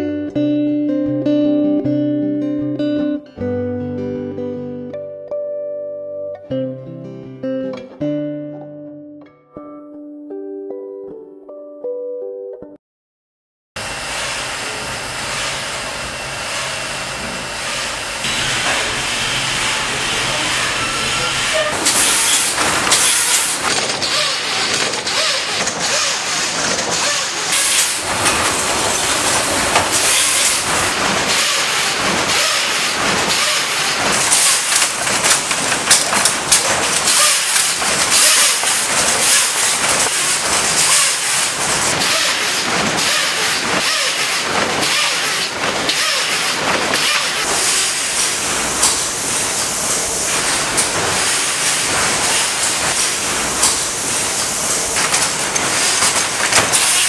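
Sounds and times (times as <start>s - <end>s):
knitting machinery hissing: 13.8s - 57.0s
mechanical clatter: 13.9s - 57.0s.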